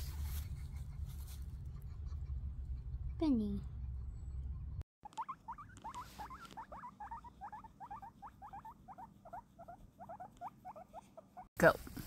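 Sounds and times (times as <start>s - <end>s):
guinea pig squeaking: 5.0s - 11.5s.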